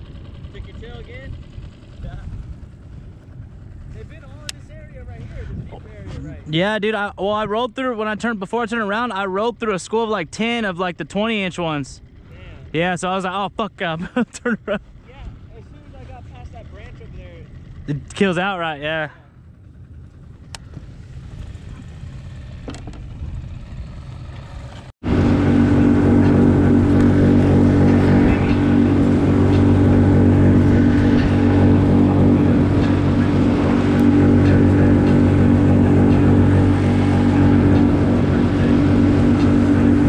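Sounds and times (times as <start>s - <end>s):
outboard motor running: 0.0s - 40.0s.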